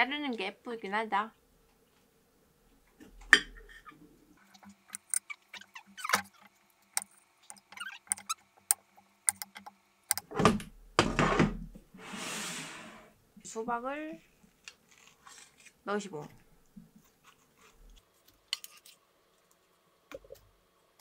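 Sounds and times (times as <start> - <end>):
knife cutting grapes on a plate: 4.9 - 5.3
brief hiss: 12.0 - 13.1.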